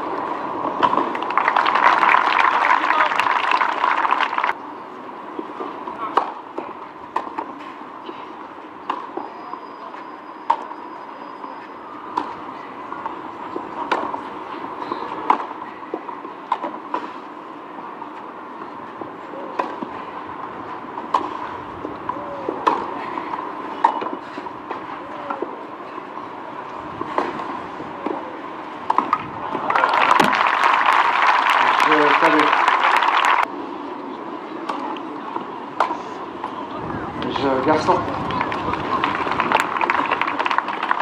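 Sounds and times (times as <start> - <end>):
steady background noise: 0.0 - 41.0
rackets hitting tennis ball: 12.1 - 14.3, 19.5 - 20.0, 21.0 - 25.6, 27.0 - 30.4.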